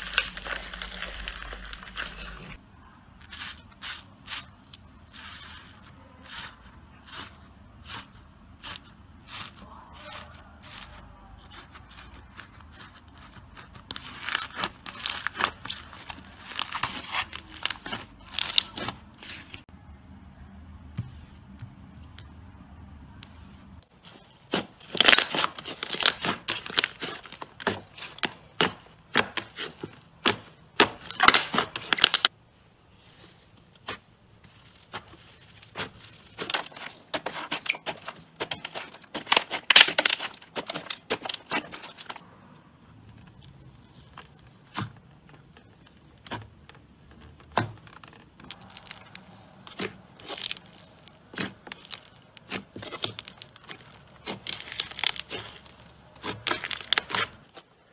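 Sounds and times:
slime crackling and popping: 0.0 - 2.6, 11.5 - 19.4, 24.1 - 32.3, 34.6 - 42.2, 47.5 - 57.6.

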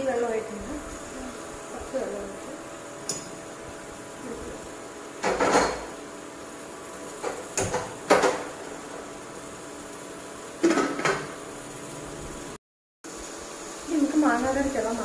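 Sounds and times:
metal pot clattering on stove: 5.2 - 5.9, 10.6 - 11.3.

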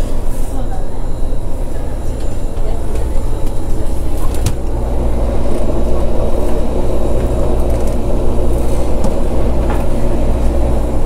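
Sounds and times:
ship engines droning: 0.0 - 11.0.

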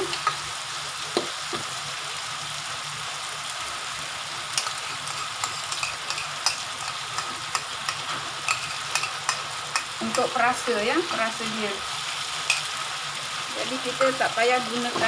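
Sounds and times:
food sizzling in oil: 0.0 - 15.0
metal spatula scraping wok: 4.6 - 10.3.

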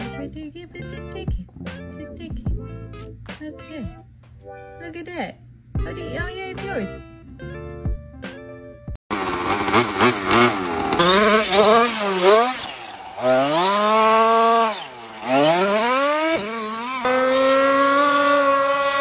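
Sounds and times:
rc truck engine revving: 9.1 - 19.0.

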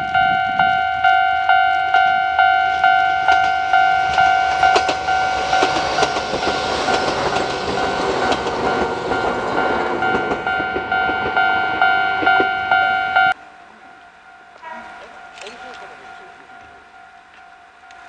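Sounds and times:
level crossing bell ringing: 0.0 - 13.4
train wheels clacking on rails: 0.0 - 13.4, 14.3 - 18.0.

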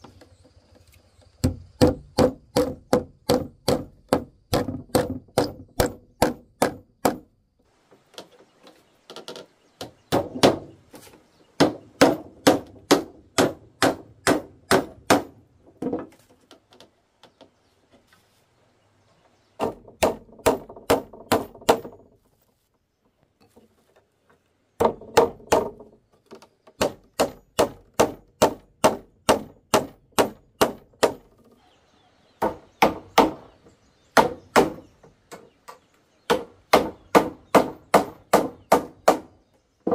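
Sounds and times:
hand tool striking wood: 1.4 - 7.3, 8.2 - 16.5, 19.6 - 22.1, 24.8 - 31.4, 32.4 - 33.6, 34.2 - 39.9.

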